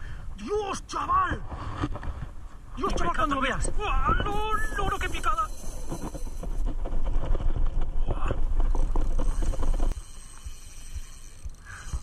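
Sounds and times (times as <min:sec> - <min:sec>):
wind buffeting microphone: 0:01.2 - 0:10.0.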